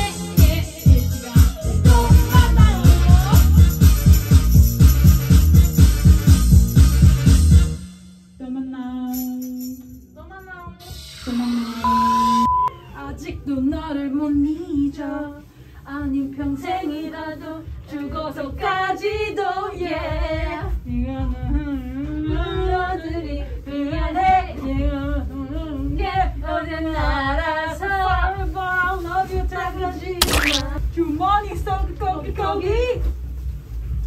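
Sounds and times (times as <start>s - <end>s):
women singing pop tune: 0.0s - 3.8s, 13.0s - 30.8s.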